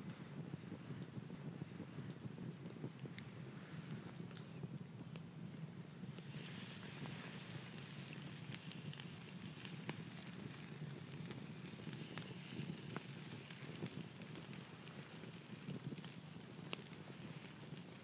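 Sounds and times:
campfire wood crackling: 0.4s - 18.0s
bacon sizzling on a grill: 6.1s - 18.0s.

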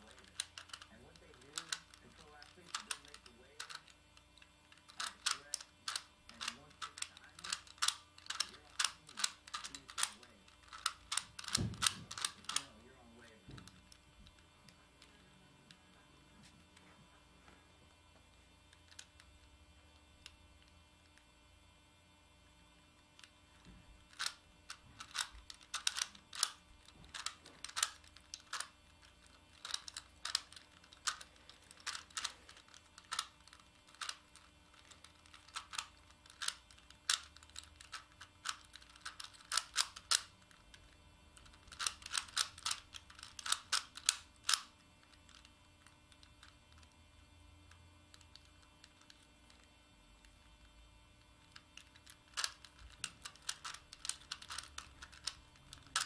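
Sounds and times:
puzzle cube clicking as turned: 0.0s - 12.8s, 13.6s - 14.4s, 24.0s - 47.0s, 48.1s - 50.3s, 51.2s - 56.0s.

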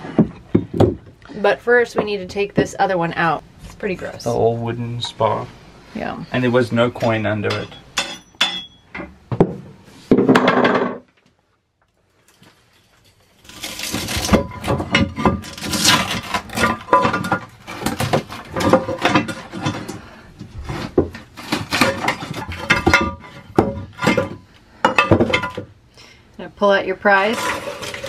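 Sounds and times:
rapid scraping and knocking: 13.4s - 24.4s.

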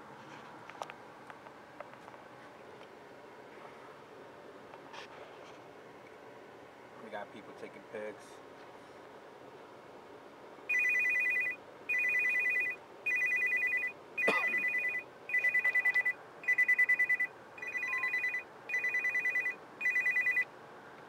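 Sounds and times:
phone ringtone trills: 10.7s - 20.5s.

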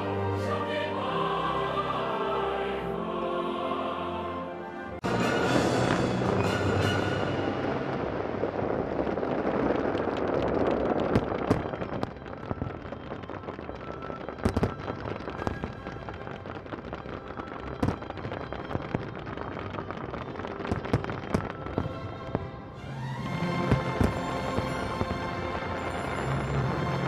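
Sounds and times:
fireworks bangs: 5.0s - 22.5s, 23.5s - 27.0s
fireworks crackling: 5.0s - 27.0s.

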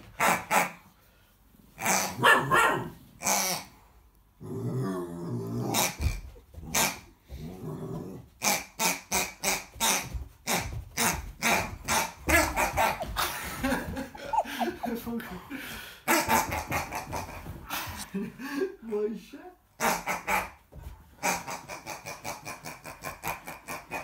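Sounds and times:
puppy barking: 2.2s - 3.0s, 14.1s - 15.0s
puppy growling: 4.4s - 6.0s, 11.9s - 17.5s.

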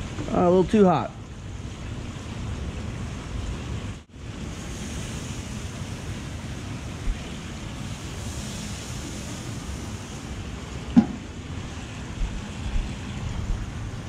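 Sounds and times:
wind rumbling on microphone: 1.4s - 14.0s
fish sizzling on a grill: 4.4s - 10.4s.

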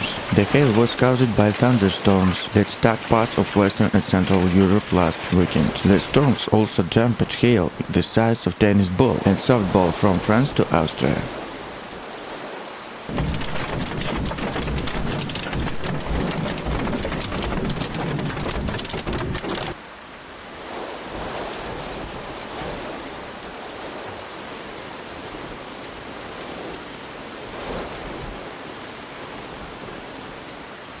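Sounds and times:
rain hissing: 0.0s - 11.4s, 12.5s - 20.1s
hail rattling on car: 13.1s - 19.8s.

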